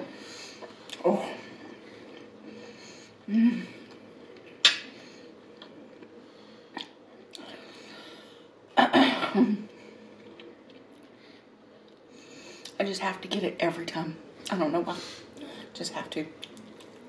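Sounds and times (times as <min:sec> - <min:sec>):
woman humming: 0:03.3 - 0:03.8.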